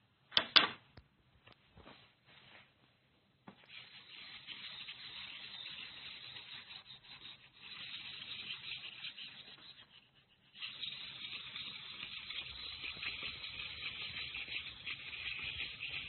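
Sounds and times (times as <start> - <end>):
pad rubbing on paper: 3.7 - 16.0.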